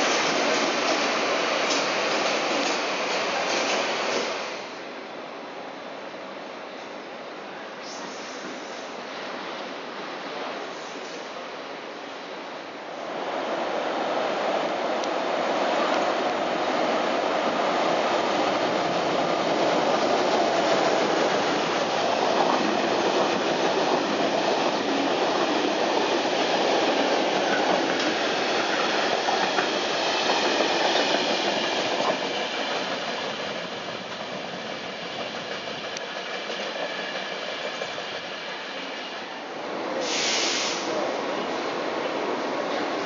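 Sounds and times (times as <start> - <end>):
train wheels running over rails: 0.0 - 4.8, 15.8 - 39.3.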